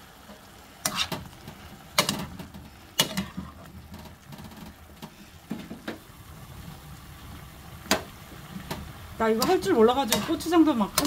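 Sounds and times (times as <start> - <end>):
metal spoon scraping a frying pan: 0.8 - 1.3, 3.0 - 3.6, 9.4 - 11.0.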